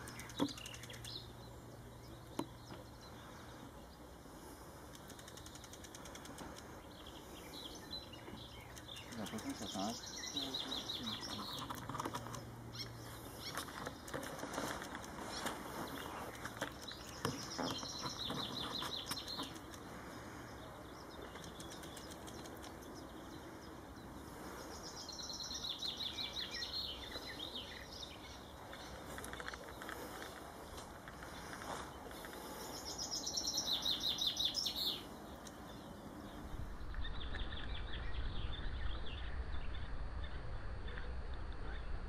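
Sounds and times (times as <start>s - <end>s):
scattered clicks: 0.0s - 1.2s, 4.8s - 6.8s, 8.6s - 10.0s, 11.2s - 12.5s, 13.6s - 15.6s, 16.3s - 17.4s, 18.3s - 19.9s, 21.2s - 23.0s
songbirds trilling: 0.0s - 42.0s.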